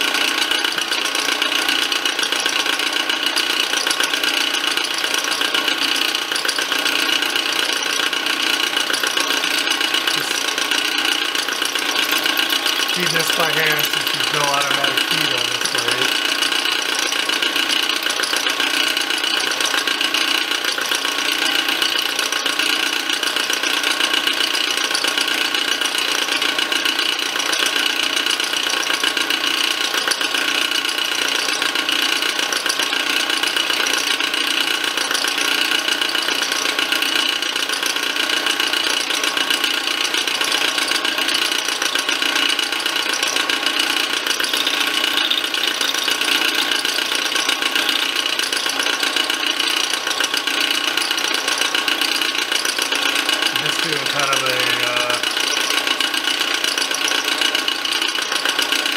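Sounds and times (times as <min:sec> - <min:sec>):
milling machine cutting metal: 0:06.5 - 0:18.9.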